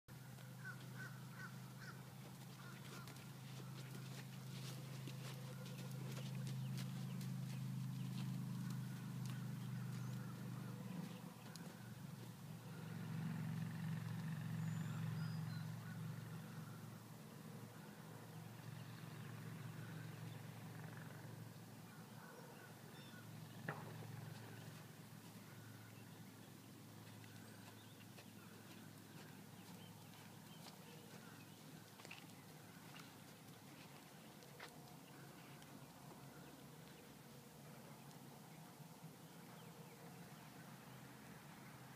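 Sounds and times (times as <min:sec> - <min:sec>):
vehicle engine humming: 0:00.1 - 0:41.9
horse hoofbeats on dirt: 0:00.4 - 0:13.4, 0:23.1 - 0:26.1, 0:26.7 - 0:37.0.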